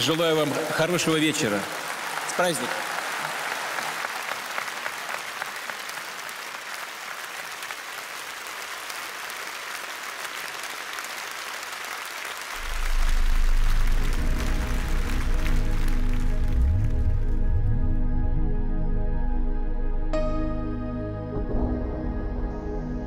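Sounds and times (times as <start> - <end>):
audience applauding: 0.0 - 17.5
music with deep bass: 12.6 - 23.0.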